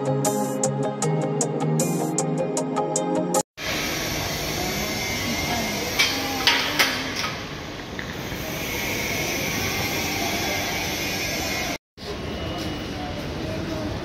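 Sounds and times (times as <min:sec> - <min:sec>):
station concourse hiss and hum: 0:03.6 - 0:14.0.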